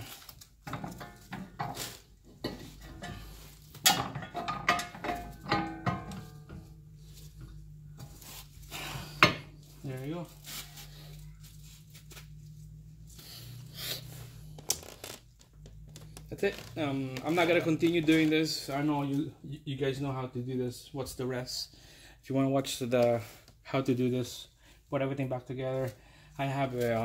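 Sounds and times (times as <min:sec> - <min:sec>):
metal clanking and rattling: 0:00.6 - 0:06.8
steady low hum: 0:00.6 - 0:17.8.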